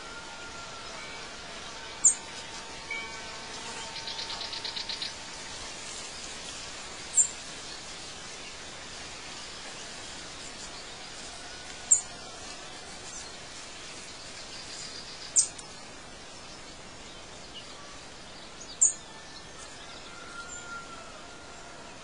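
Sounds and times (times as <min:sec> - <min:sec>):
steady background hiss: 0:00.0 - 0:22.0
birds calling: 0:02.9 - 0:19.4.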